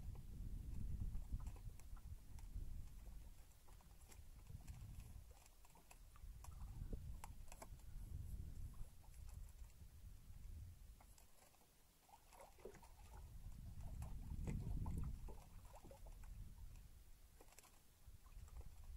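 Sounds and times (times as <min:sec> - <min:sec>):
clicks and taps of fishing gear: 0:00.0 - 0:09.7, 0:13.8 - 0:17.8.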